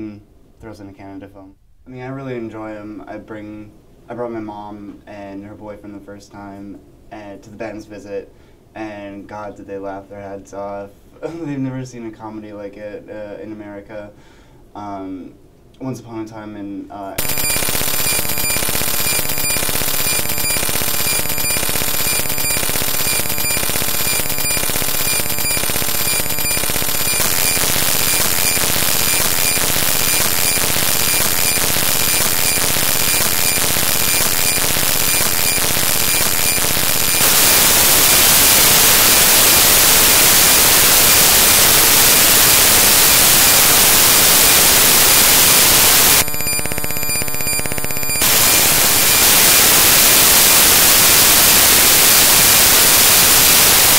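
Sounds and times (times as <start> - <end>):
steady whining tones: 17.2 - 51.5
digital glitch static hiss: 17.2 - 53.9.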